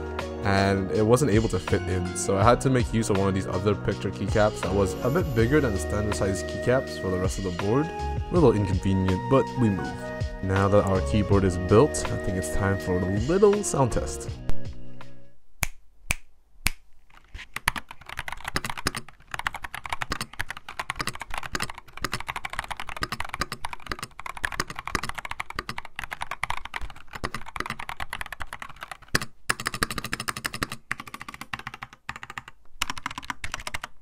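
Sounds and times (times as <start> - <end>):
fast typing on mechanical keyboard: 17.2 - 34.0.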